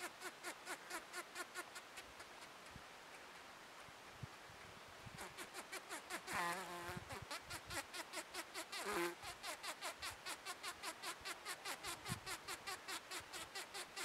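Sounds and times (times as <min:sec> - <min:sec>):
bumblebee wing buzz: 0:05.2 - 0:14.0.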